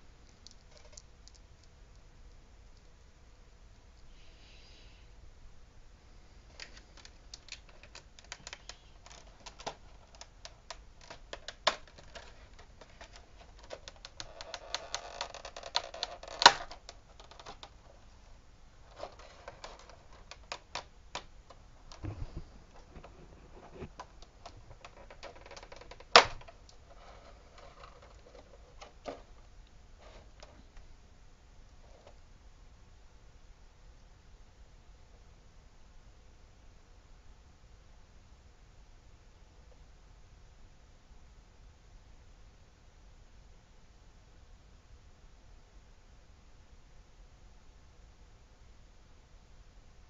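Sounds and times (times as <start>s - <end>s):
sharp plastic snaps: 6.6s - 17.8s, 23.8s - 26.8s
plastic packaging crinkling: 11.0s - 17.7s.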